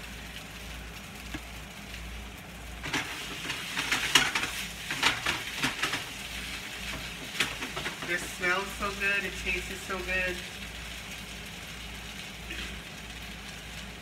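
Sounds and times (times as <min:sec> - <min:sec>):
chicken sizzling in a frying pan: 0:00.0 - 0:14.0
tongs scraping and stirring: 0:02.8 - 0:09.0.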